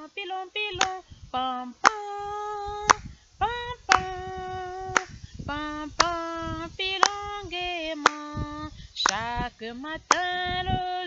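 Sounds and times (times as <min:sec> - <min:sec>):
woman singing unaccompanied: 0:00.0 - 0:11.0
hands clapping: 0:08.0 - 0:08.2, 0:09.0 - 0:09.2.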